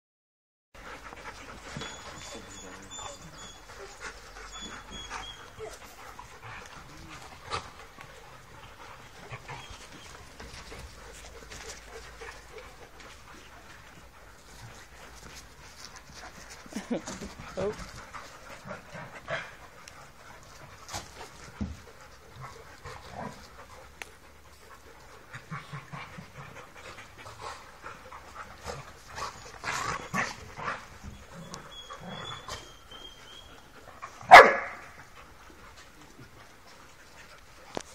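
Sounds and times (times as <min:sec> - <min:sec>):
dogs panting and scuffling: 0:00.8 - 0:37.9
dogs barking: 0:34.2 - 0:35.0.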